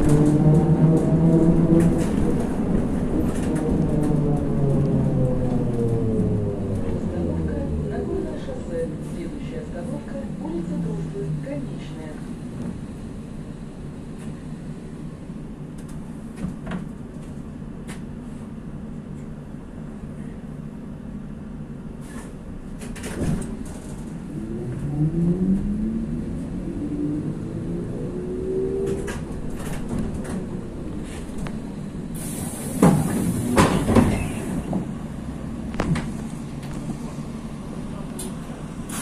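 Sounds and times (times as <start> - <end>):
trolleybus ride rumble: 0.0 - 39.0
air hiss: 32.1 - 33.7.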